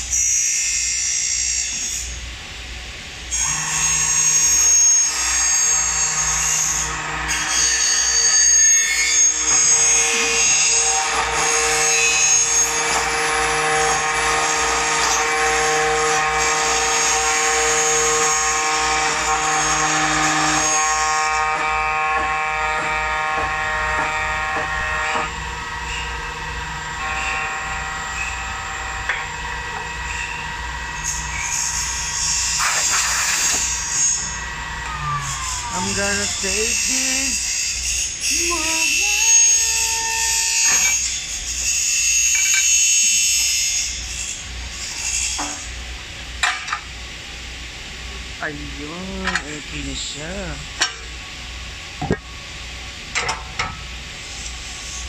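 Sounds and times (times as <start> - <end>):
milling machine whine: 0.0 - 55.0
cutter milling aluminium: 3.3 - 46.8.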